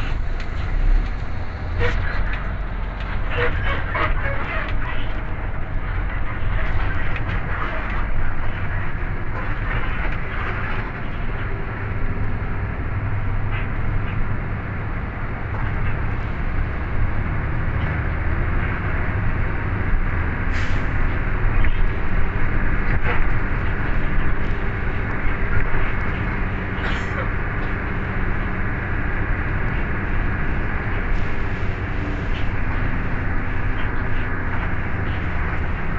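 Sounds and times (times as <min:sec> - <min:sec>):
bus engine and road rumble: 0:00.0 - 0:35.9.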